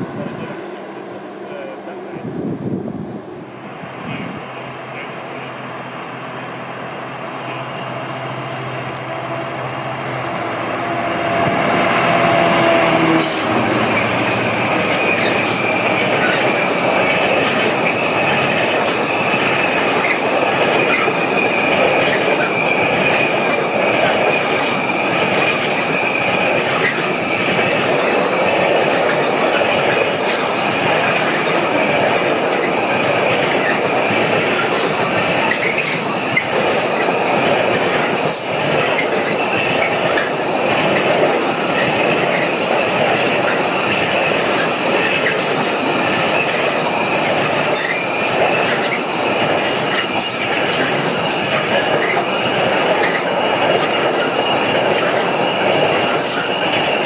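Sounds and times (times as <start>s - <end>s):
diesel locomotive engine: 0.0s - 57.0s
train wagons rolling past: 3.6s - 57.0s
high wheel squeal: 10.9s - 31.8s, 32.5s - 57.0s
wheels clacking over rail joints: 11.4s - 57.0s.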